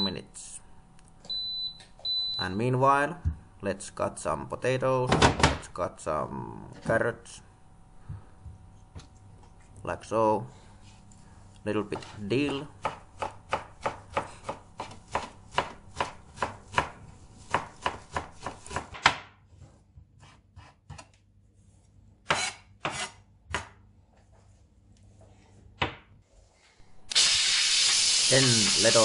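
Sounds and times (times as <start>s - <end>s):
knife chopping on cutting board: 12.0s - 19.3s.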